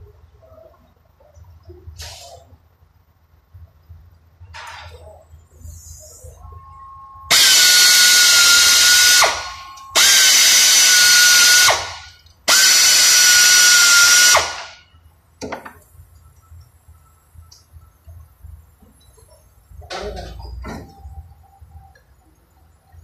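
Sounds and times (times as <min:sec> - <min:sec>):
air hiss: 0:02.0 - 0:02.5
air ratchet whining: 0:07.3 - 0:14.8.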